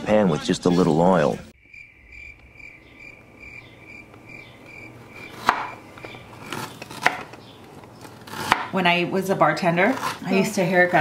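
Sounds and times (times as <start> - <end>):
crickets chirping: 1.6 - 6.7
knife chopping on plastic board: 5.1 - 7.4, 8.0 - 8.8.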